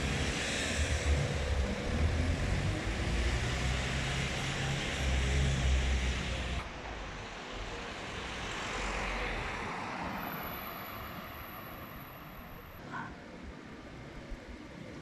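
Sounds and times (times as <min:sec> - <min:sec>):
distant road traffic: 0:00.0 - 0:15.0.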